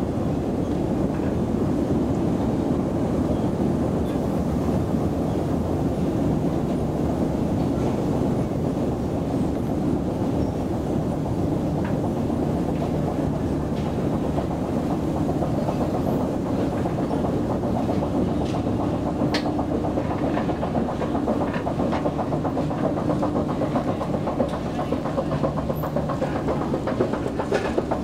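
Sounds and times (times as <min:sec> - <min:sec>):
escalator mechanical hum: 0:00.0 - 0:28.0
rhythmic clatter at escalator landing: 0:00.0 - 0:28.0
escalator steps clicking: 0:03.8 - 0:28.0.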